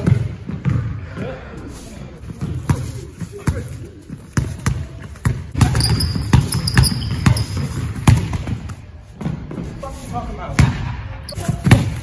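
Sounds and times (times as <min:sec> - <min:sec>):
sneakers squeaking on court: 0:02.3 - 0:09.6
basketball bouncing on wooden floor: 0:04.4 - 0:08.6.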